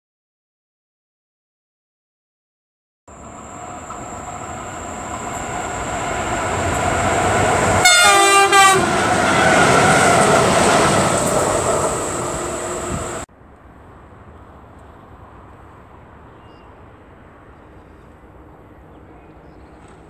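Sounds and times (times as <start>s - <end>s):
freight train passing: 3.1s - 20.0s
locomotive horn blasts: 7.7s - 9.9s.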